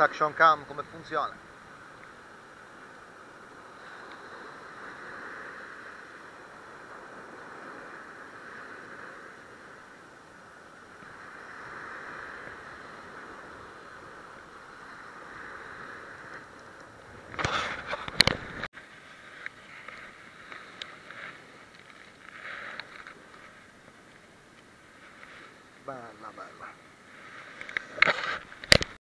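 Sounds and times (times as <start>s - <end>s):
wind and sea rushing: 0.0s - 29.0s
faint clicks and rustling: 19.3s - 25.8s.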